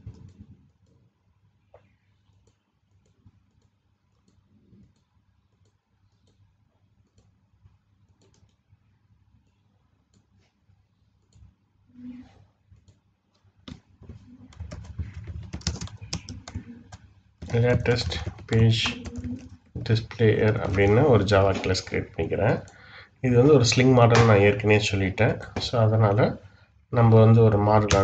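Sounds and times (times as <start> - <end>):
computer mouse clicks: 0.0 - 1.0, 1.7 - 7.3, 8.1 - 8.7, 11.2 - 11.5, 12.8 - 21.9
keyboard typing: 8.1 - 8.7, 13.6 - 26.4, 27.0 - 28.0.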